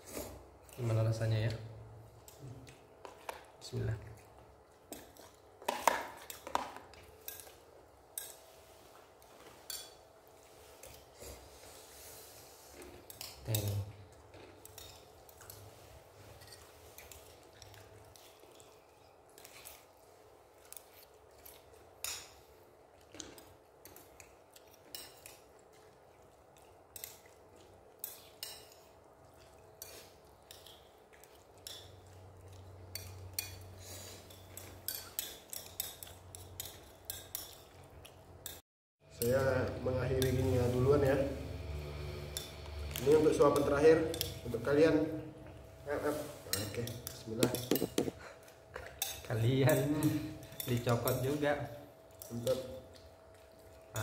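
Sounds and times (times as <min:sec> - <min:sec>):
cutlery clinking on a plate: 0:46.4 - 0:51.4.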